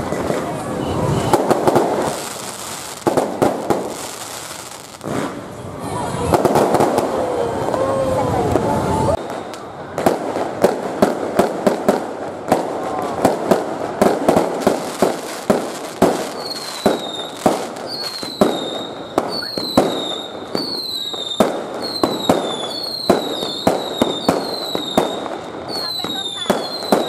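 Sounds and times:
fireworks bangs: 0:00.0 - 0:27.0
falling firework whistles: 0:16.1 - 0:27.0.

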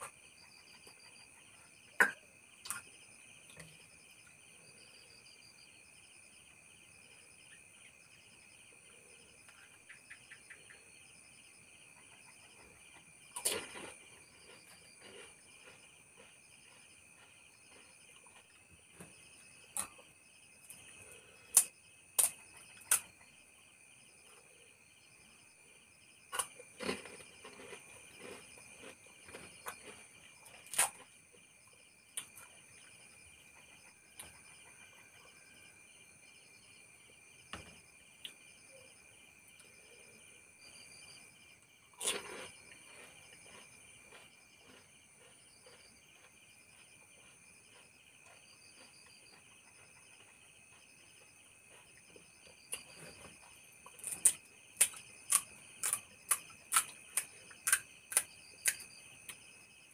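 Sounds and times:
night insects chirping: 0:00.0 - 0:59.9
crunchy snacks being bitten: 0:13.3 - 0:18.5, 0:21.1 - 0:23.1, 0:26.3 - 0:31.1, 0:41.9 - 0:50.3, 0:51.7 - 0:59.4.

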